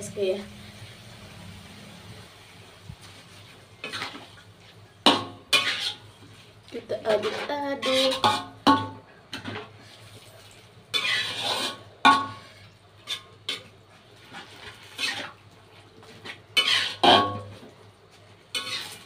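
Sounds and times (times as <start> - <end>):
metal spatula scraping a wok: 5.1 - 10.1, 10.9 - 15.4, 16.0 - 17.6, 18.5 - 19.0.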